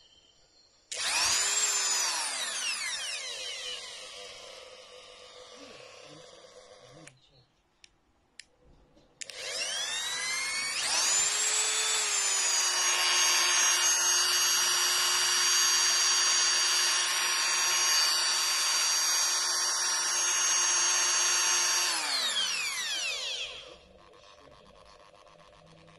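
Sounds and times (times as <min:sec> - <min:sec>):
rotary tool motor whine: 0:00.9 - 0:07.0, 0:09.2 - 0:25.9.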